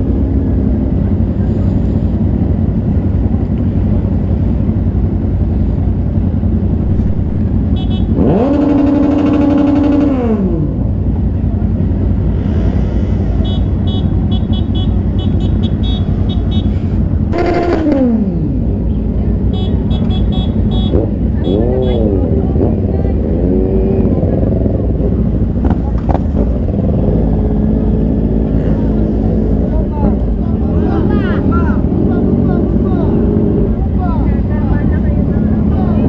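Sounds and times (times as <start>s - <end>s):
motorcycle engine rumble: 0.0s - 36.0s
engine revving: 6.7s - 11.0s, 15.8s - 18.8s, 20.1s - 36.0s.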